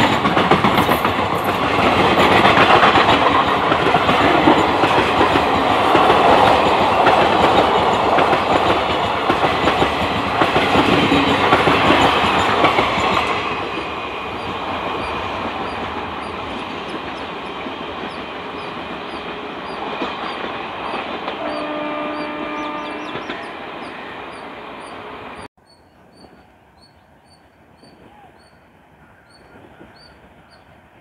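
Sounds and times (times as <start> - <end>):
train wheels clattering on rails: 0.0 - 25.5
train horn: 21.3 - 23.4.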